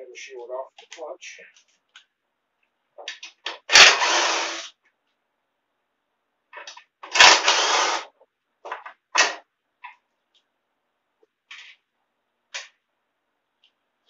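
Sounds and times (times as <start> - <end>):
power tool bursts: 3.7 - 4.7, 7.1 - 8.1.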